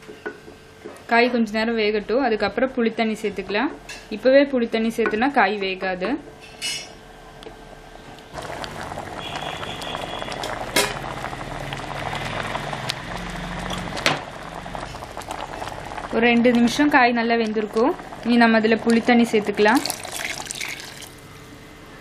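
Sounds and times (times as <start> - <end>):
thick stew bubbling at a boil: 7.5 - 21.5.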